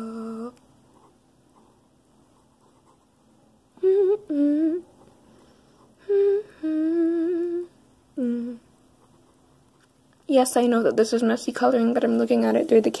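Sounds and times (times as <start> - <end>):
woman humming: 0.0 - 0.6, 3.8 - 5.0, 6.0 - 8.7.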